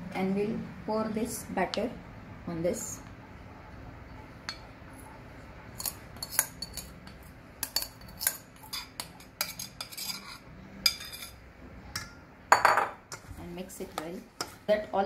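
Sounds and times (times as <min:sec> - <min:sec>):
metal spoon scraping bowl: 0:05.7 - 0:11.4.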